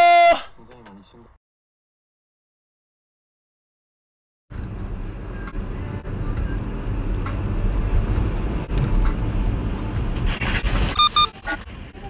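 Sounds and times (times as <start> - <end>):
car engine and road noise: 4.5 - 12.0.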